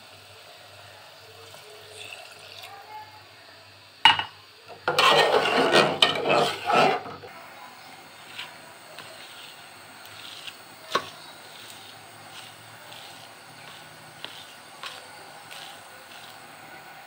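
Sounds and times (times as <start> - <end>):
food mixing scraping: 4.9 - 7.3, 7.9 - 17.0.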